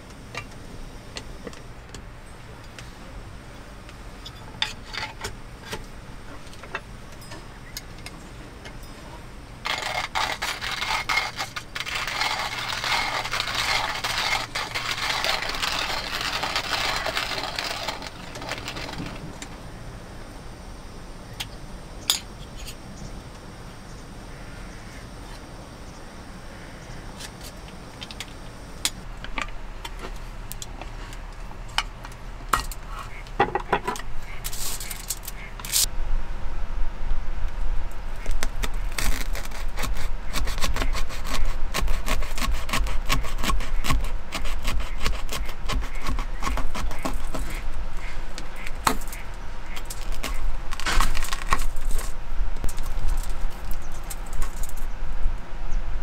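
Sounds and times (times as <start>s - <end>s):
coffee beans clicking and rattling: 9.6s - 19.2s, 48.6s - 54.8s
hand grinder crunching coffee beans: 9.6s - 19.2s, 38.2s - 47.6s, 48.6s - 54.8s.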